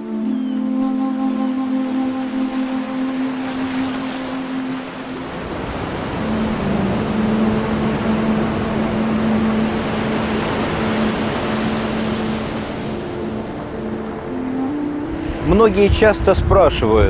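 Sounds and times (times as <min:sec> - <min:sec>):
background music with long notes: 0:00.0 - 0:17.0
surf on a pebble beach: 0:02.1 - 0:17.0.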